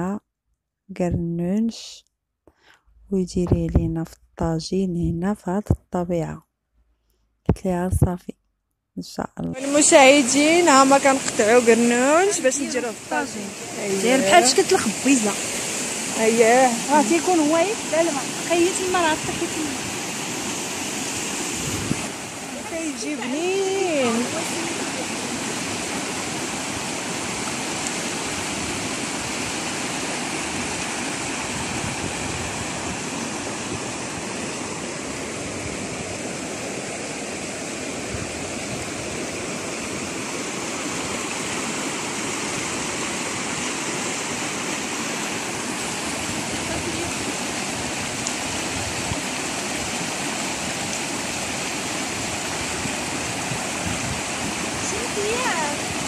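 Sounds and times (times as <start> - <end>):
stream rushing over stones: 9.6 - 56.0.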